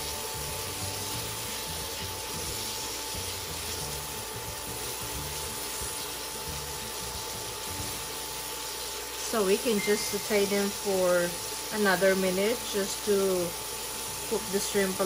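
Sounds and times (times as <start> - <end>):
food sizzling in oil: 0.0 - 15.0
thin steady whine: 0.0 - 15.0.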